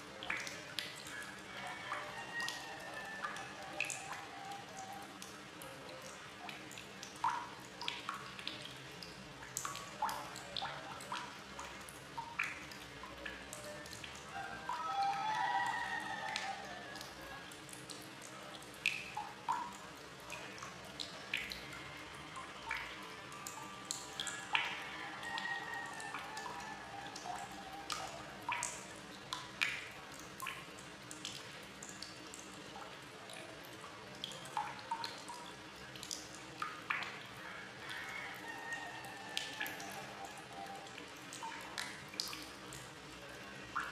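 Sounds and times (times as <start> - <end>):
faint steady hiss: 0.0 - 43.9
water drops plinking into water: 0.2 - 21.8, 22.4 - 33.5, 34.1 - 37.2, 38.7 - 42.9.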